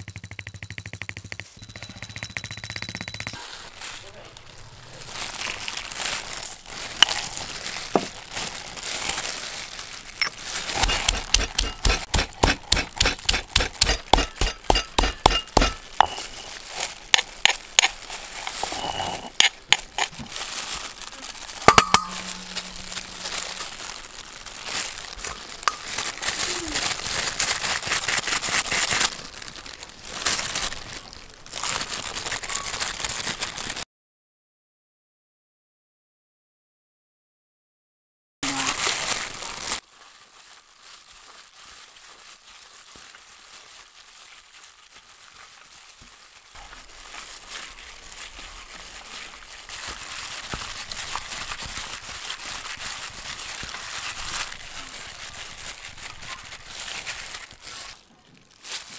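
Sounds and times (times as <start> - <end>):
pestle pounding in stone mortar: 0.0 - 3.4, 10.7 - 18.7, 21.6 - 23.6
plastic gloves and bags crinkling: 3.3 - 33.8, 38.4 - 58.9.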